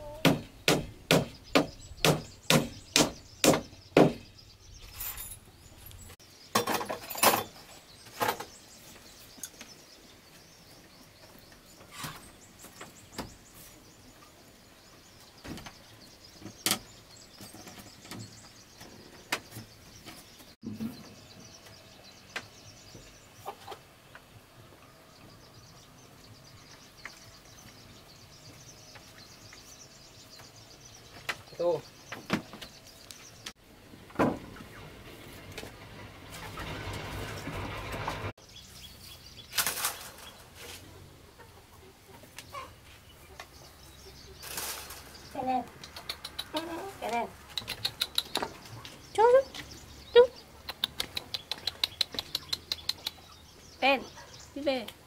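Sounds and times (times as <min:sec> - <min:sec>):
wood knocking on wood: 0:00.2 - 0:04.3.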